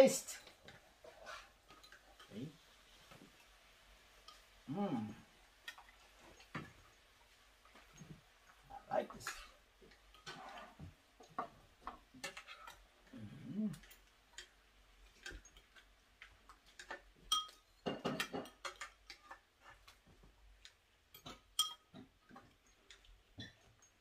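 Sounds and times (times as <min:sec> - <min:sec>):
utensils clinking against dishes: 0:16.8 - 0:19.4, 0:21.1 - 0:24.0.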